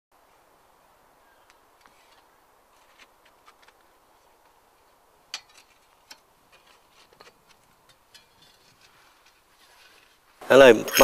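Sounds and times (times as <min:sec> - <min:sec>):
hand tool scraping soil and stone: 0:05.3 - 0:10.4.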